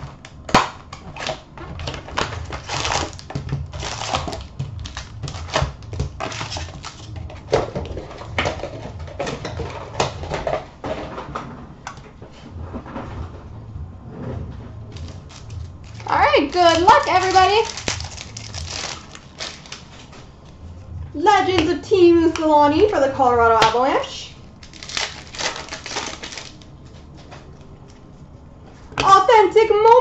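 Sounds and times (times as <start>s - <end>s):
foil packs crinkling and rustling: 0.0s - 10.4s, 14.9s - 20.5s, 24.5s - 27.2s.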